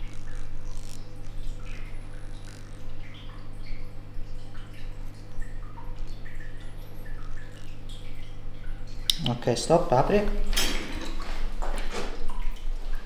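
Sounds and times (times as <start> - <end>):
massage device motor humming: 0.0 - 3.5.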